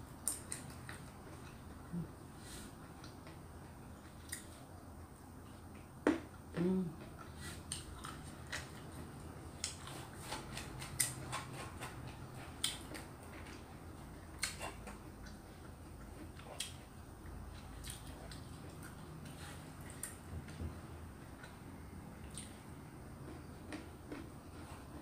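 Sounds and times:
person chewing with mouth open: 4.0s - 4.7s, 6.6s - 20.6s, 22.2s - 25.0s
low throat hum: 6.5s - 7.1s.

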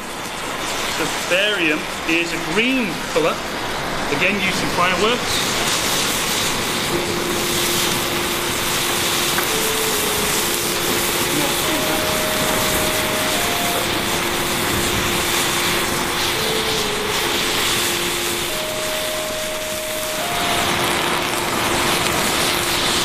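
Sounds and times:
flame jet hissing: 0.0s - 23.0s
slow tune held notes: 6.8s - 23.0s.

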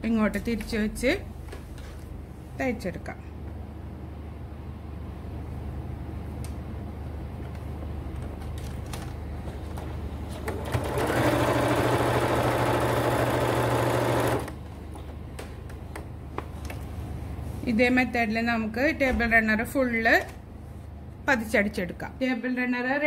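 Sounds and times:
sewing machine stitching: 10.4s - 14.6s.

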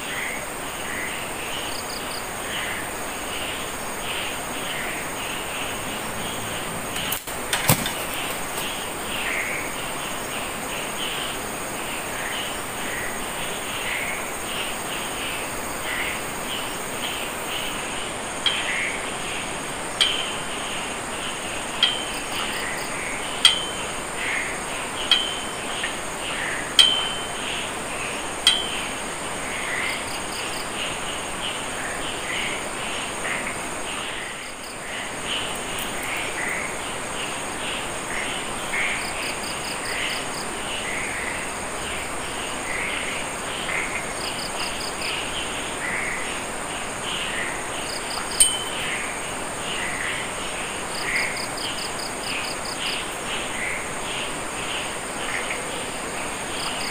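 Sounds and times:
crickets chirping: 0.0s - 56.9s
sharp ringing clicks: 25.1s - 25.6s, 26.8s - 27.4s, 48.4s - 49.0s
high-pitched insect drone: 47.8s - 52.8s.

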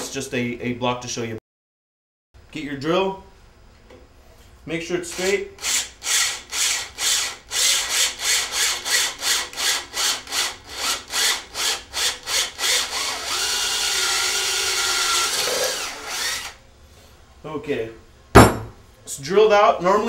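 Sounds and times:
cordless drill boring metal: 5.1s - 16.6s.

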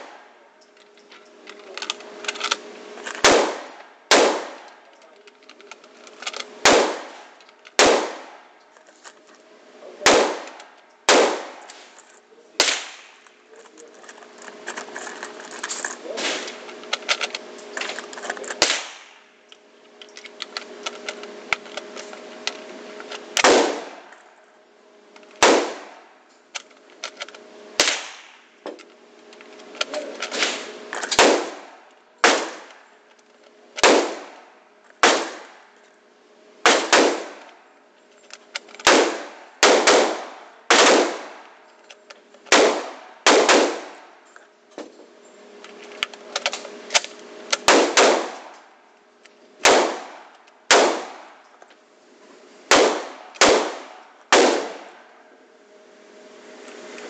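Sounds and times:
rifle shots echoing indoors: 3.2s - 4.7s, 6.6s - 7.2s, 7.8s - 8.4s, 38.8s - 41.4s, 42.5s - 44.0s.

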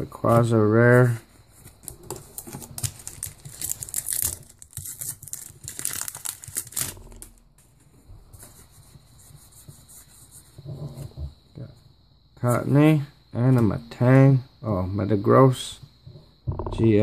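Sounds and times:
cards rustling in hands: 1.0s - 8.9s
foil wrapper crinkling and tearing: 1.8s - 7.4s.

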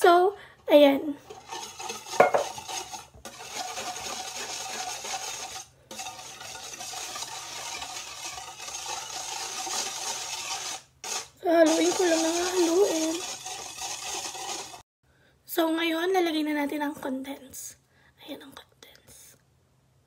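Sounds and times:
whisk stirring in metal pan: 0.0s - 14.8s.

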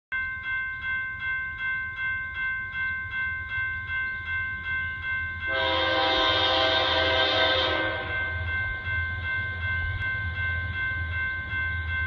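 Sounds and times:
crossing bell ringing: 0.1s - 12.0s
locomotive horn: 5.5s - 8.2s.

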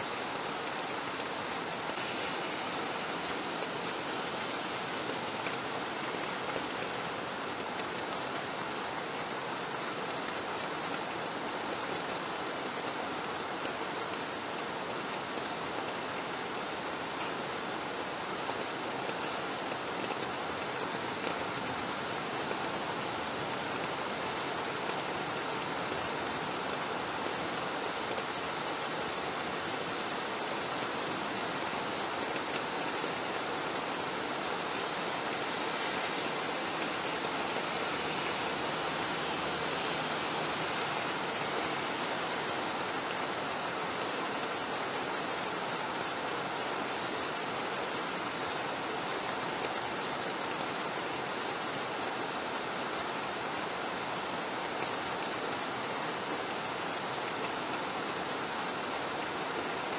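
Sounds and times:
steady rain: 0.0s - 59.9s.

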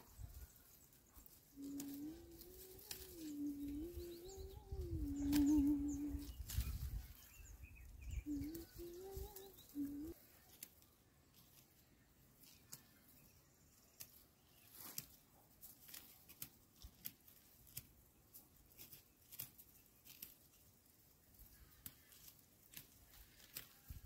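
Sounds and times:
dry barley heads snapping: 1.7s - 3.3s, 5.1s - 6.9s, 14.0s - 20.6s, 21.4s - 24.0s.

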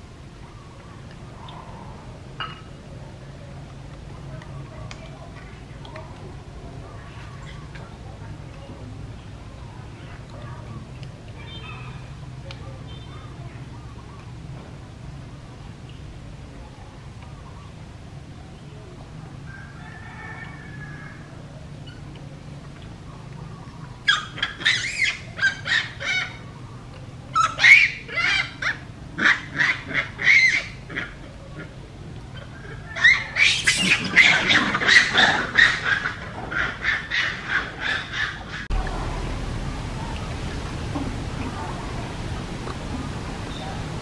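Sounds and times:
macaque high-pitched calls: 24.0s - 26.5s, 27.4s - 31.2s, 32.4s - 38.7s.

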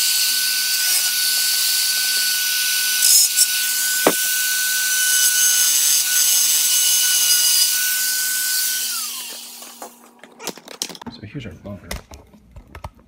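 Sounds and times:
rotary tool motor whine: 0.0s - 10.1s.

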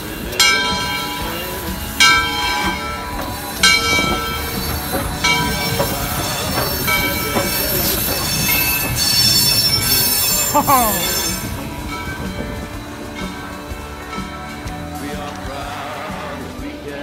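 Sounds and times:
locomotive rods and wheels rumbling: 0.0s - 17.0s
steam locomotive bell ringing: 0.0s - 17.0s.

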